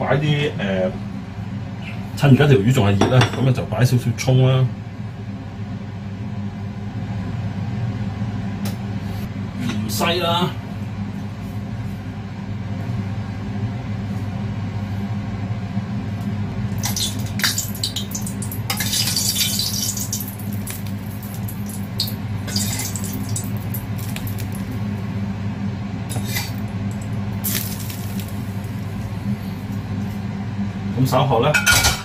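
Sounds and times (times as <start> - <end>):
steady low hum: 0.0 - 32.0
oil sizzling: 16.6 - 25.1, 26.1 - 29.8.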